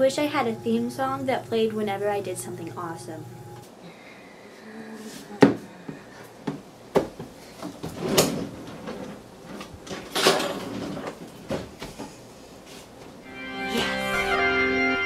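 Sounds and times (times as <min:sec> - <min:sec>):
kitchen drawer sliding: 0:07.8 - 0:11.8.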